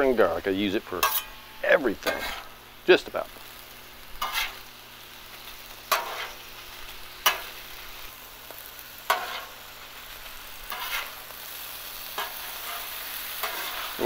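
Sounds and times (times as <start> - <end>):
meat and vegetables sizzling on griddle: 0.0 - 14.0
metal spatulas scraping on steel: 1.0 - 1.4, 2.0 - 2.5, 4.2 - 4.6, 5.9 - 6.4, 9.1 - 9.6, 10.7 - 11.2, 12.2 - 14.0.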